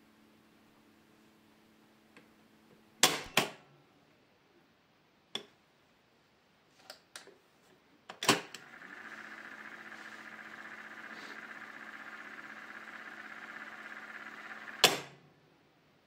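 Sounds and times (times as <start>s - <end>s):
tape mechanism whirring: 8.5s - 15.2s.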